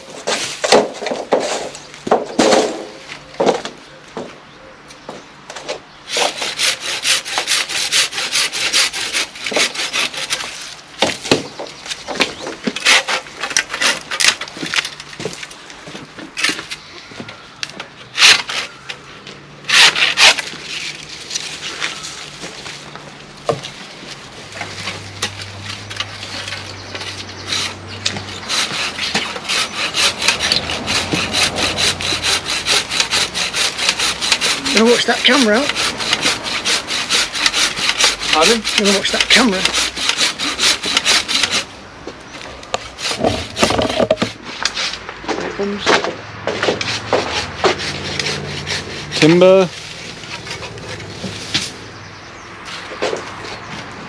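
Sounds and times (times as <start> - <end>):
hand saw rasping through wood: 6.1 - 10.8, 12.6 - 14.5, 19.7 - 21.9, 24.6 - 41.7, 42.7 - 45.0, 46.5 - 51.7
sharp knocks: 43.0 - 44.4.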